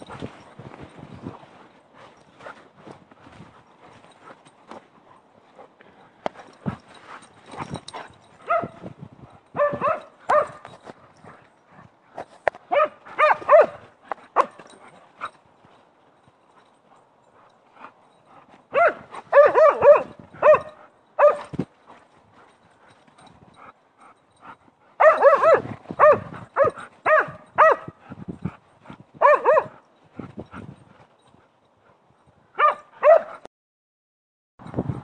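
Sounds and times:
dog barking high-pitched: 8.5 - 8.8, 9.6 - 10.6, 12.7 - 13.8, 18.7 - 21.5, 25.0 - 27.9, 29.2 - 29.7, 32.6 - 33.4.

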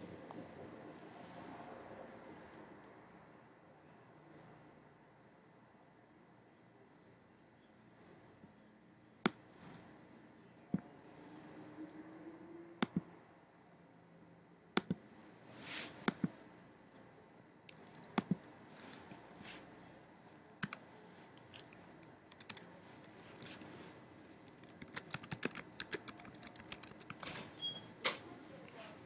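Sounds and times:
mouse clicks: 14.8 - 15.0
keyboard typing: 17.7 - 18.5, 20.6 - 20.8, 21.6 - 23.7, 24.5 - 27.4.

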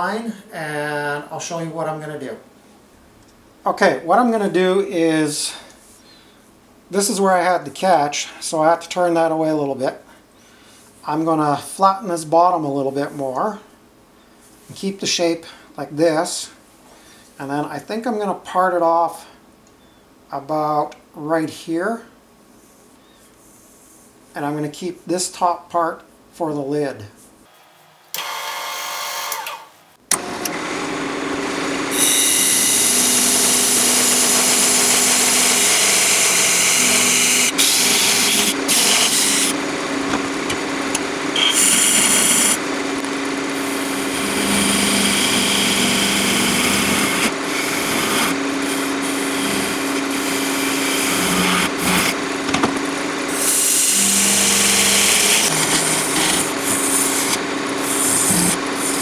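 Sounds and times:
lathe motor hum: 30.2 - 59.0
turning tool scraping wood: 31.9 - 52.5, 53.4 - 59.0.

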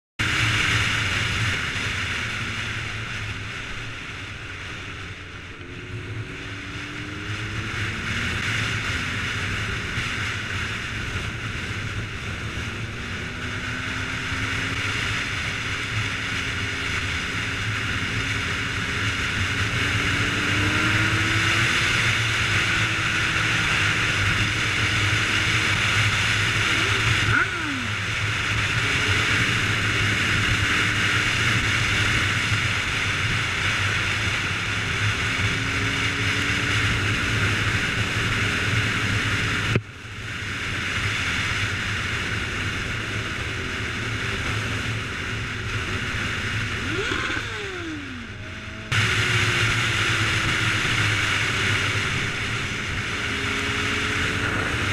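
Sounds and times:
motorcycle engine: 0.2 - 54.9
wind rush on microphone: 0.2 - 54.9
falling whine: 42.4 - 54.9.

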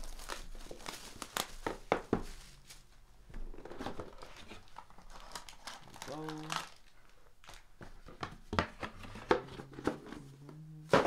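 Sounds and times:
pack wrappers rustling and crinkling: 0.0 - 8.1.

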